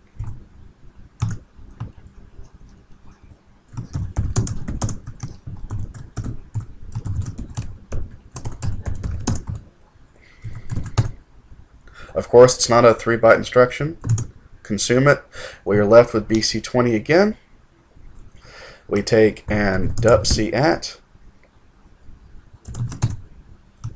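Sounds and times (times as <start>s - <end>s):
typing on computer keyboard: 1.2s - 2.0s, 3.7s - 9.7s, 10.4s - 11.2s, 14.0s - 14.3s, 22.6s - 23.9s.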